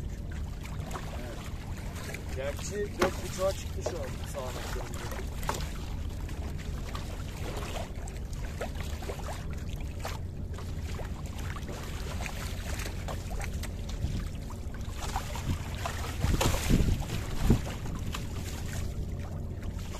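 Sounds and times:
water lapping against hull: 0:00.0 - 0:19.9
wind on microphone: 0:15.2 - 0:18.5.

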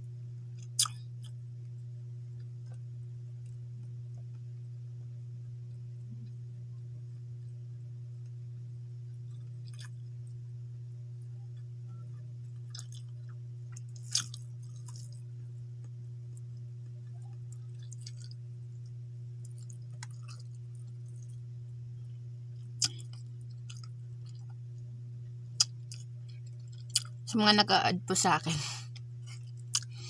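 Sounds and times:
steady low hum: 0:00.0 - 0:30.0
mouth chewing and smacking: 0:00.7 - 0:01.4, 0:12.6 - 0:15.2, 0:17.5 - 0:18.4, 0:19.4 - 0:21.4, 0:22.6 - 0:24.6, 0:25.6 - 0:27.2, 0:29.4 - 0:30.0.

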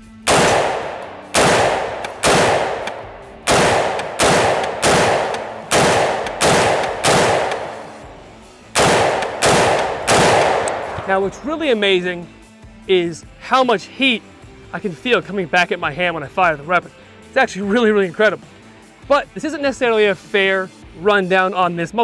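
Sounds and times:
rifle gunshots: 0:00.2 - 0:11.5.

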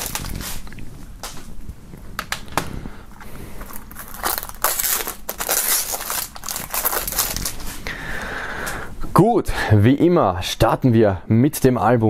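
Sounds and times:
plastic wrap crinkling: 0:00.0 - 0:08.8.

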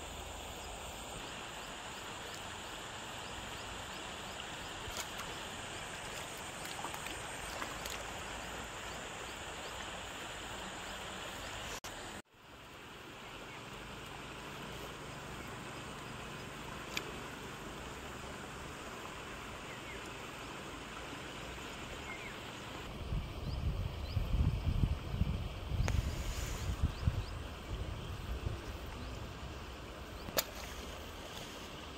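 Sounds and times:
slow stream hiss: 0:00.0 - 0:31.9.

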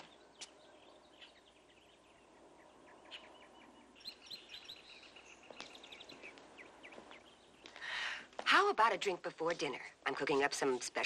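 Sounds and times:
birds chirping: 0:00.0 - 0:11.0.

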